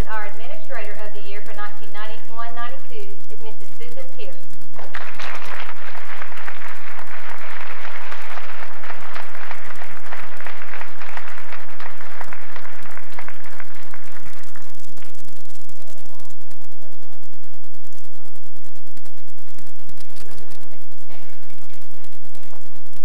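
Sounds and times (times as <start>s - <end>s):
audience applauding: 4.8s - 16.2s.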